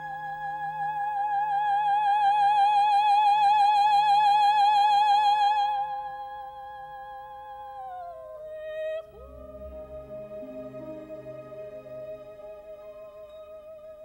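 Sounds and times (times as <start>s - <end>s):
soft orchestral accompaniment: 8.4s - 14.0s.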